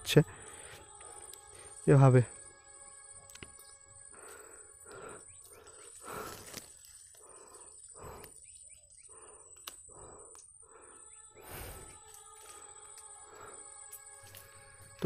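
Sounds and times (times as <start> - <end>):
faint steady high tone: 0.0 - 5.1, 10.4 - 15.0
twigs snapping: 3.2 - 4.4, 5.4 - 7.3, 9.5 - 10.5, 13.9 - 15.0
leaves rustling as torn: 5.8 - 7.2.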